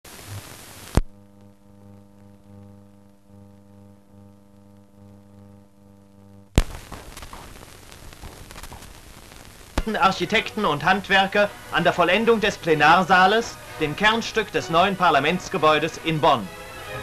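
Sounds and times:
crackle: 0.0 - 14.5
electrical hum: 0.1 - 17.0
film soundtrack hiss: 0.1 - 17.0.

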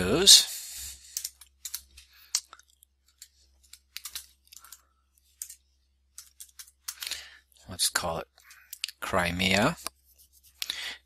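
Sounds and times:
keyboard keys clicking: 3.1 - 4.8.

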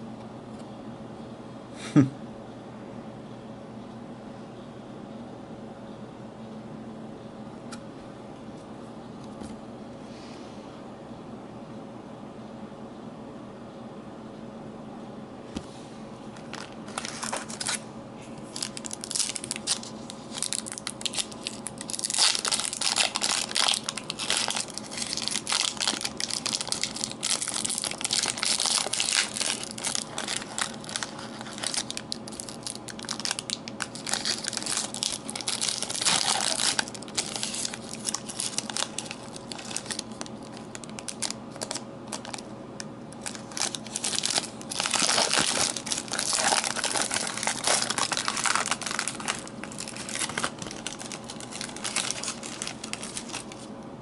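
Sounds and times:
foil wrappers crinkling: 16.4 - 17.8, 18.4 - 42.5, 43.1 - 53.7.

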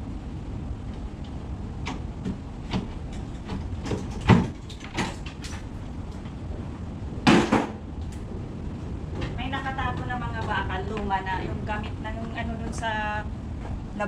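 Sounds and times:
low rumble: 0.0 - 14.0
wooden panel knocks and creaks: 1.8 - 5.7.

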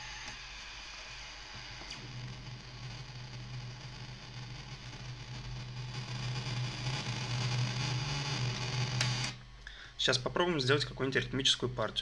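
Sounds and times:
distorted synthesizer drone: 1.7 - 12.0.

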